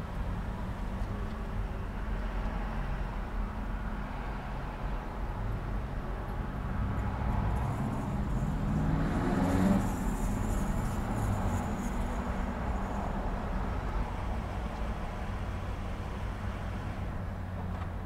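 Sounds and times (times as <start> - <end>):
intersection traffic: 0.0 - 18.0
vehicle passing close: 6.7 - 17.0.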